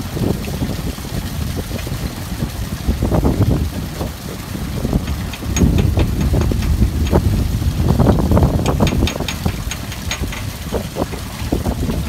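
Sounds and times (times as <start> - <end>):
engine low rumble: 0.0 - 12.0
sharp metallic ticks: 5.0 - 11.3.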